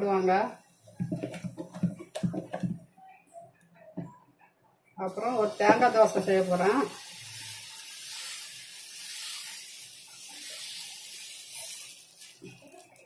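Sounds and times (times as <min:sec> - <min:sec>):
batter hissing on hot pan: 0:05.1 - 0:13.0.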